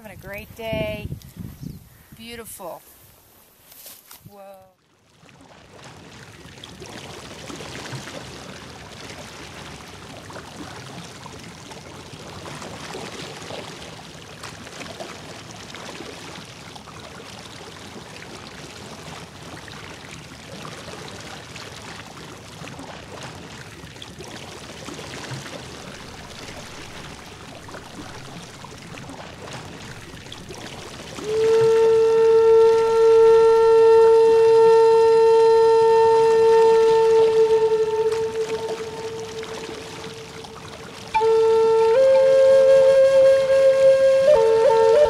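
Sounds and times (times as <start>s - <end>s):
creek rushing over rocks: 24.5s - 32.6s.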